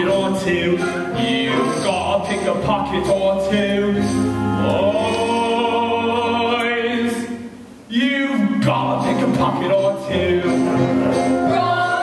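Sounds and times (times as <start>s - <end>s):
instrumental accompaniment: 0.0s - 6.4s.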